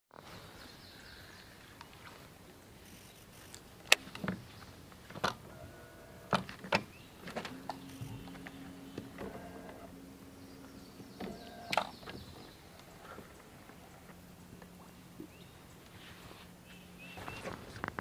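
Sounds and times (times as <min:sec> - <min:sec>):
electric motor humming: 0:07.2 - 0:14.4.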